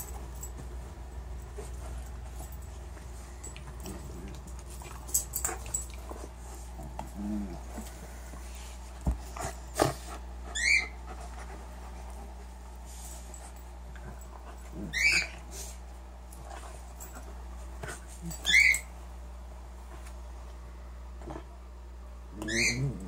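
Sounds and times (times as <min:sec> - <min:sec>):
dog whining: 0:10.4 - 0:11.0, 0:14.8 - 0:15.4, 0:18.2 - 0:18.9, 0:22.3 - 0:23.0.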